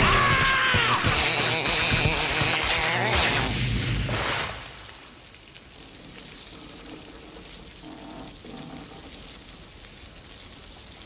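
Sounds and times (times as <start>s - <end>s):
loud splash: 0.0s - 5.3s
steady wash of water: 2.1s - 11.0s.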